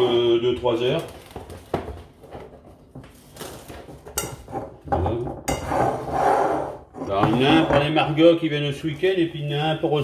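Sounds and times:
cling film tearing and crinkling: 0:00.8 - 0:01.8, 0:03.1 - 0:04.0.

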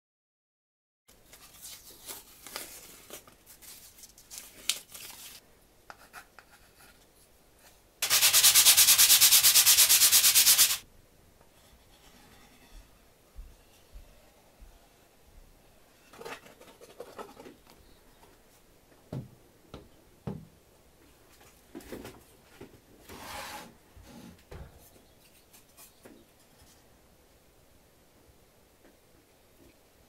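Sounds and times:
pencil and wood scratching: 0:08.0 - 0:10.8
sanding wood by hand: 0:08.0 - 0:10.8.

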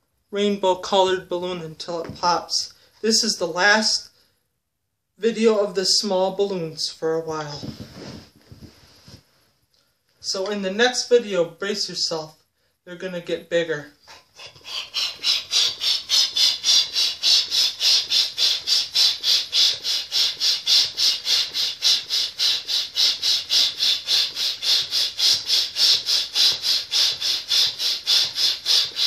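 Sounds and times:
balloon pump hissing air: 0:14.1 - 0:29.0.

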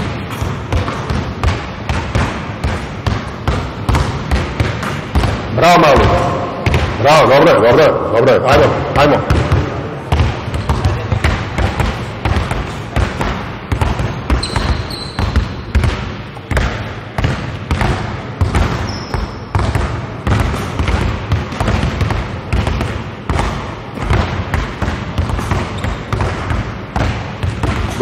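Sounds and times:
basketballs bouncing on hardwood: 0:00.0 - 0:07.9, 0:08.5 - 0:28.0
short high squeaks: 0:14.4 - 0:15.2.

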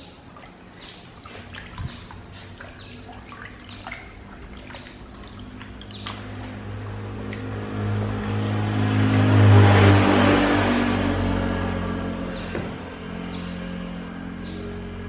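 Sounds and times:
water sloshing in plastic basin: 0:00.0 - 0:10.9
vehicle engine passing: 0:01.5 - 0:15.0.

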